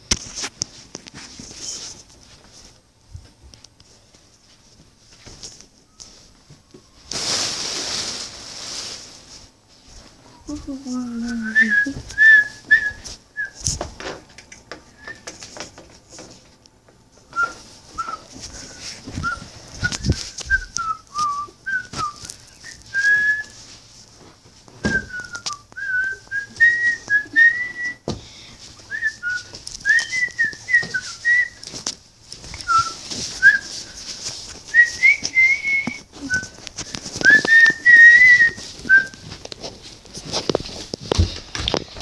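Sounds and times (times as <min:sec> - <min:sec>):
person whistling: 0:11.3 - 0:13.6, 0:14.9 - 0:15.3, 0:17.3 - 0:23.6, 0:24.8 - 0:28.1, 0:28.9 - 0:31.6, 0:32.6 - 0:34.0, 0:34.7 - 0:39.2.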